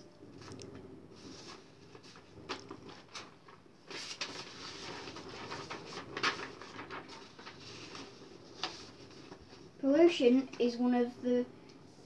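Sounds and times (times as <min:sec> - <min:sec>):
paper rustling and crackling: 0:00.4 - 0:09.7.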